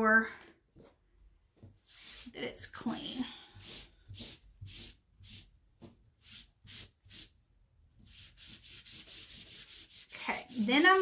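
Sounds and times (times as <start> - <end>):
wet wipe rubbing on stencil: 1.8 - 2.4, 3.5 - 5.5, 6.2 - 7.3, 8.1 - 11.0.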